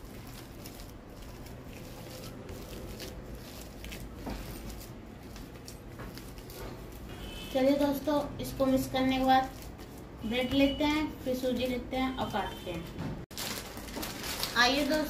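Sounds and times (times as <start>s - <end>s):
hand squishing mashed potato: 0.0s - 7.1s.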